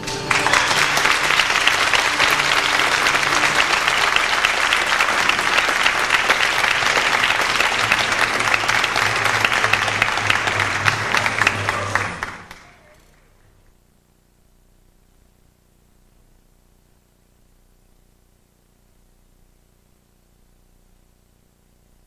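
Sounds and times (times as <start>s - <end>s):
audience applauding: 0.0s - 13.7s.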